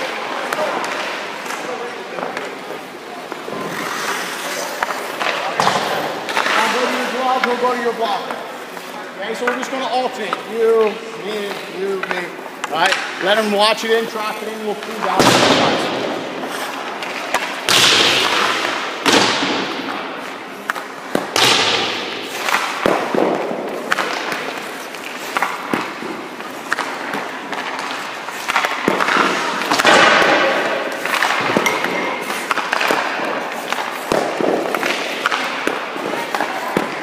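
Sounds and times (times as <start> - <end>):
stick hitting puck: 0.0 - 8.4, 9.3 - 37.0
puck hitting goalie pads: 0.0 - 8.5, 9.3 - 37.0
scraping on ice: 3.3 - 5.2.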